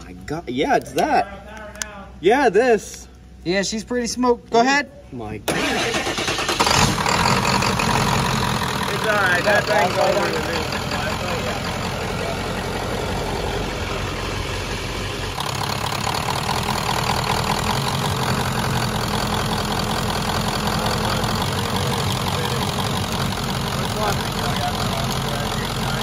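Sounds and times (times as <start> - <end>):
diesel engine idling: 5.5 - 26.0.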